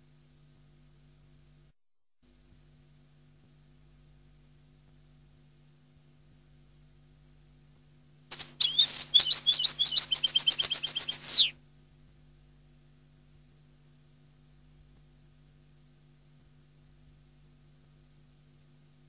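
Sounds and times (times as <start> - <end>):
finch singing trilling phrase: 8.3 - 11.5.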